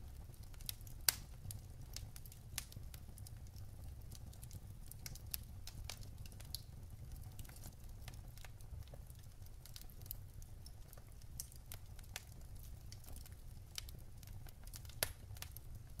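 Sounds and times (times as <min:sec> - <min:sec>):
wood fire crackling and popping: 0:00.0 - 0:16.0.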